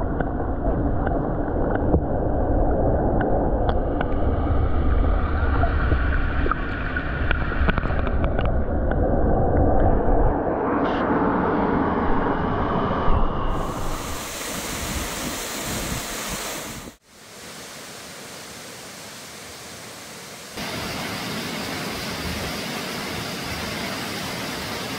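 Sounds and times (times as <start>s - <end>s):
waterfall rushing: 13.9s - 24.9s.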